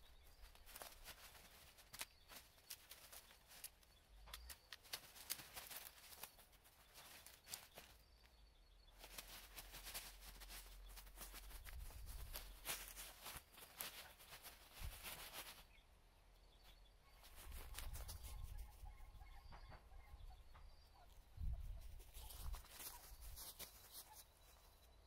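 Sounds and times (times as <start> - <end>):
faint clicks and rustles: 0.0 - 15.9, 16.6 - 25.0.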